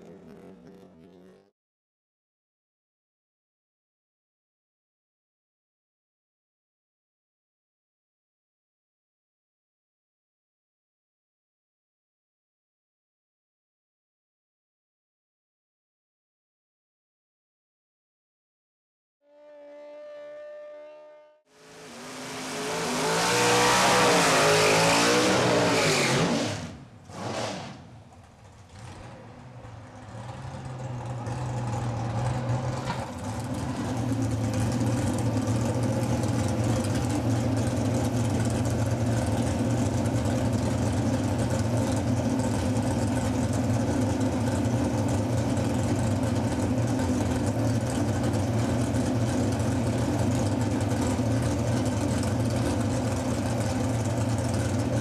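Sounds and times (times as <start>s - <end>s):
drag car engine revving: 0.0s - 1.5s, 21.6s - 55.0s
engine idling lumpily: 28.0s - 55.0s.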